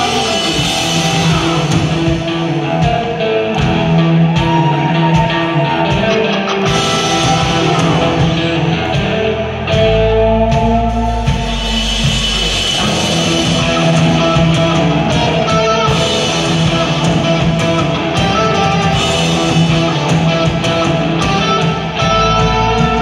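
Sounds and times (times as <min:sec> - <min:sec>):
bass guitar: 0:00.0 - 0:23.0
drums: 0:00.0 - 0:23.0
electric guitars holding long notes: 0:00.0 - 0:23.0.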